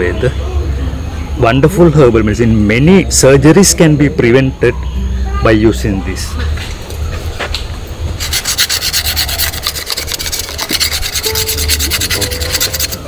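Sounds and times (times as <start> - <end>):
scratching on tree bark: 8.2 - 13.0.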